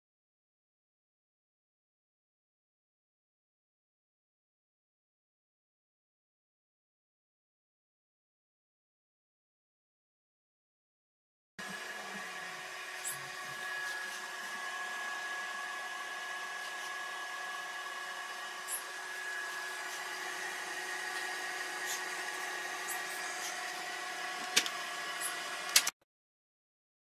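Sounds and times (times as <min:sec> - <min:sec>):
incubator fans humming with whine: 0:11.6 - 0:25.9.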